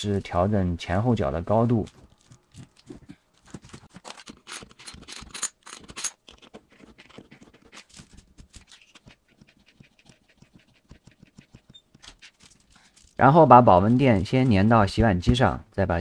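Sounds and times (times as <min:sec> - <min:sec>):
pliers scratching and clicking: 0:02.1 - 0:13.2.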